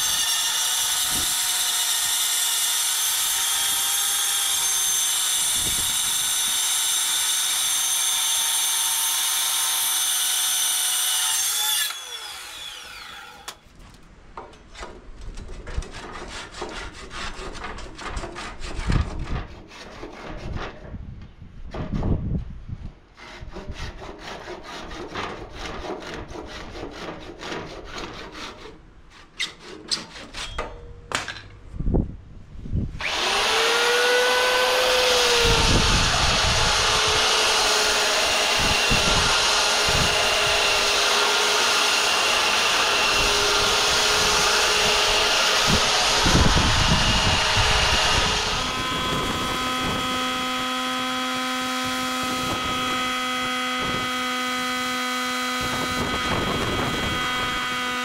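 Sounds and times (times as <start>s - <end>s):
electric sander on wood: 0.0s - 13.5s, 33.0s - 58.0s
hand tool scraping wood: 14.6s - 20.9s, 23.2s - 30.8s.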